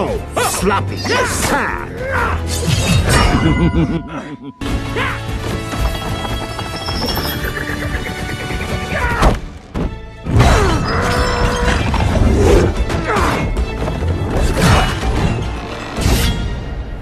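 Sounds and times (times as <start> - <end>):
tense orchestral music: 0.0 - 17.0.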